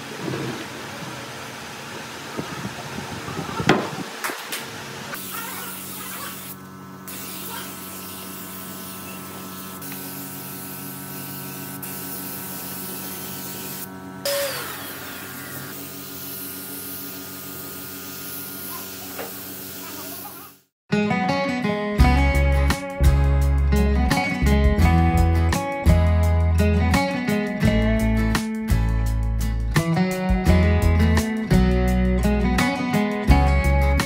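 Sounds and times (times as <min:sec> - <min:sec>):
spray gun hissing: 0:05.2 - 0:20.7.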